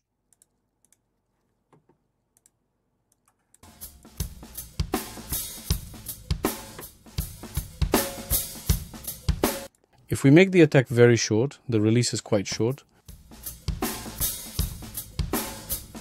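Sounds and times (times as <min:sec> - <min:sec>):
acoustic drum kit groove: 0:03.6 - 0:09.7, 0:13.1 - 0:16.0.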